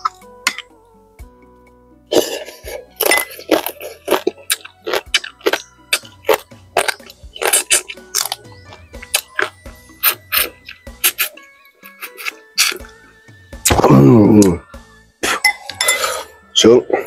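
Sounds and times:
soft background music: 0:00.0 - 0:17.0
chewing and smacking mouth sounds: 0:02.1 - 0:13.0.

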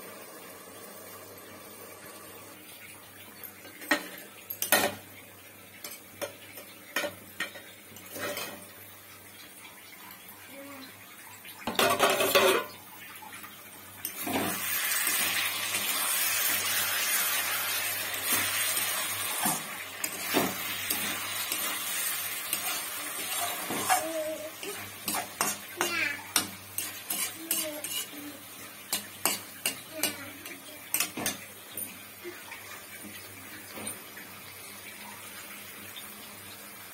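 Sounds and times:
food sizzling in pan: 0:00.0 - 0:36.9
spatula scraping pan: 0:14.0 - 0:31.4
metal spatula clinking on pan: 0:25.0 - 0:28.1.

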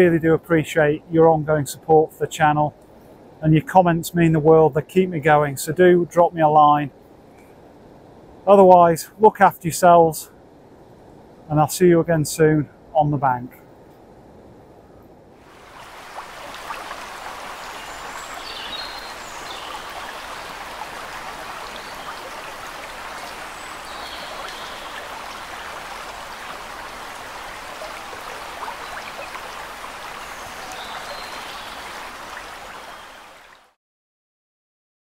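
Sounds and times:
water rushing: 0:15.4 - 0:33.8.

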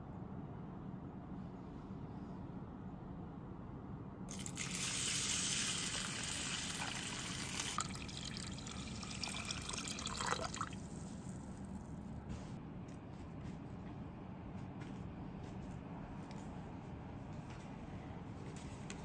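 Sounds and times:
water pouring into a steel bowl: 0:04.3 - 0:11.0.

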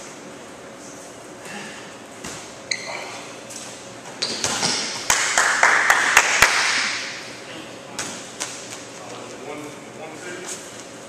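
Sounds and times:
sharp squeak: 0:02.7 - 0:03.1.

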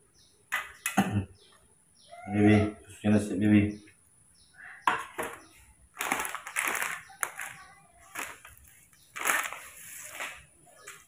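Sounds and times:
plastic bottle shaken and rustling: 0:06.0 - 0:11.0.

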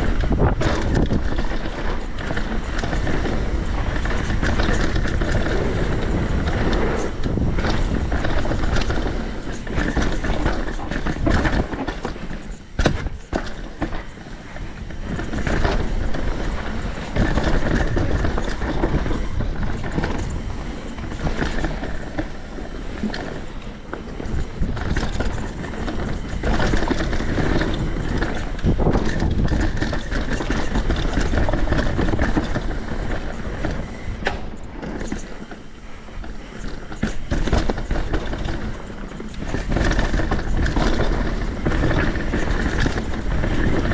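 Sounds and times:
tyre and wind rush: 0:00.0 - 0:43.9.

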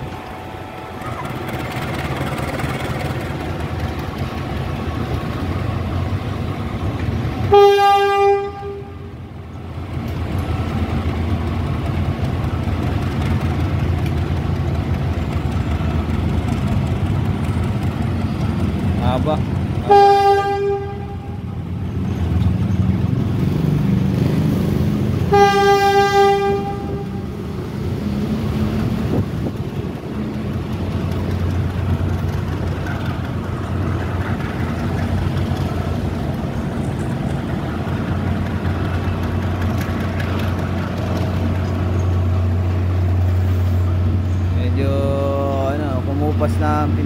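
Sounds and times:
train rumbling along tracks: 0:00.0 - 0:47.0
locomotive horn blasts: 0:07.5 - 0:09.1, 0:19.8 - 0:21.6, 0:25.3 - 0:27.4.

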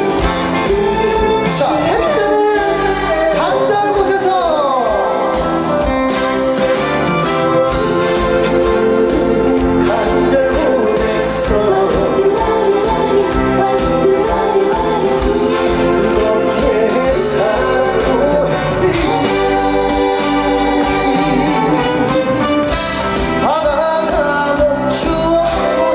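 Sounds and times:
person singing over band: 0:00.0 - 0:06.4, 0:07.8 - 0:22.5.

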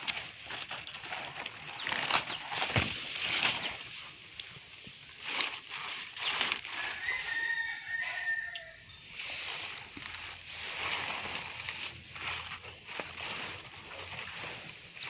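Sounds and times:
leaves rustling: 0:00.0 - 0:15.0
rooster crowing: 0:06.7 - 0:08.9.

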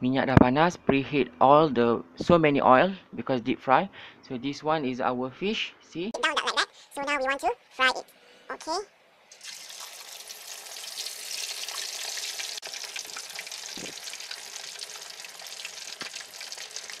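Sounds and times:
fish sizzling in hot oil: 0:09.3 - 0:17.0.

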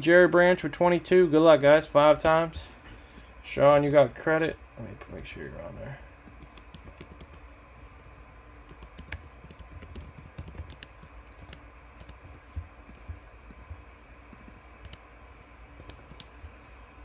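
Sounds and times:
computer keyboard typing: 0:06.2 - 0:07.5, 0:08.6 - 0:15.0, 0:15.8 - 0:16.4.

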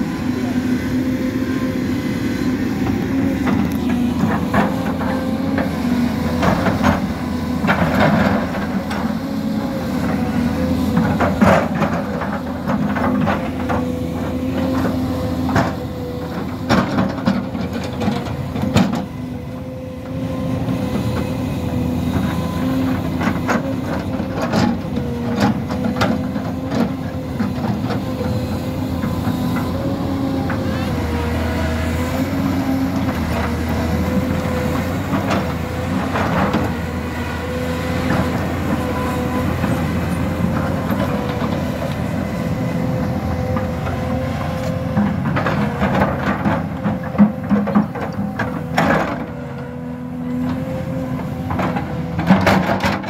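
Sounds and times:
hydraulic pump whine: 0:00.0 - 0:07.8
excavator diesel engine: 0:00.0 - 0:53.0.

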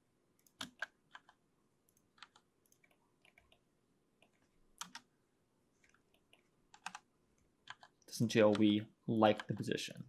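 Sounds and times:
keyboard and mouse clicks: 0:00.4 - 0:03.6, 0:04.2 - 0:05.1, 0:05.8 - 0:09.7.

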